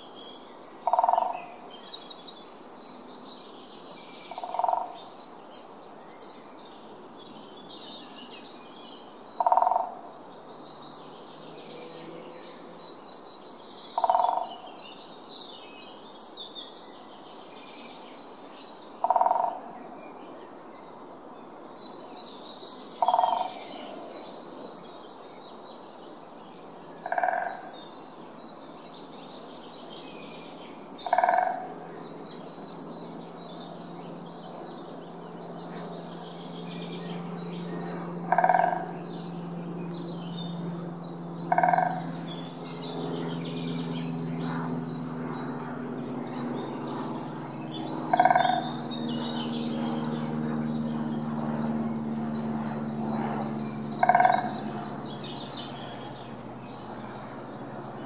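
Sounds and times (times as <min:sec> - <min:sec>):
small birds chirping: 0:00.0 - 0:58.0
woodpecker drumming on wood: 0:14.0 - 0:14.4, 0:38.3 - 0:38.9, 0:41.5 - 0:42.0, 0:48.1 - 0:48.6, 0:54.0 - 0:54.5.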